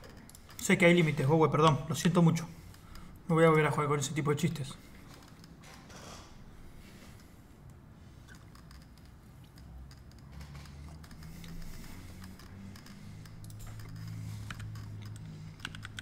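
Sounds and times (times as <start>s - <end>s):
steady low hum: 0.0s - 16.0s
computer keyboard typing: 8.3s - 16.0s.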